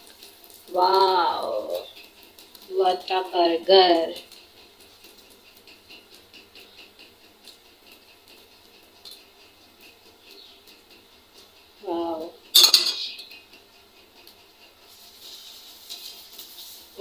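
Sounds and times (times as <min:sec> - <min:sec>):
oil crackling in a pan: 0:00.0 - 0:17.0
person speaking: 0:00.7 - 0:01.9, 0:02.7 - 0:04.2, 0:11.8 - 0:13.2.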